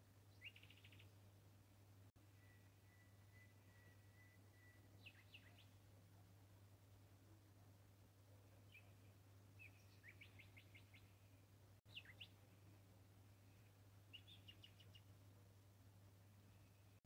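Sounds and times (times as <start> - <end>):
low steady hum: 0.0 - 17.0
small birds chirping: 0.2 - 1.3, 2.1 - 6.4, 8.3 - 15.6.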